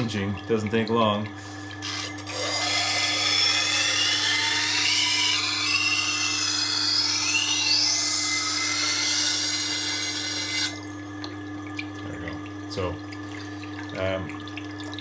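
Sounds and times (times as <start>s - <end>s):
motor hum: 0.0s - 15.0s
steel scraping on grinding wheel: 1.8s - 10.8s
blade ringing whine: 1.8s - 10.9s.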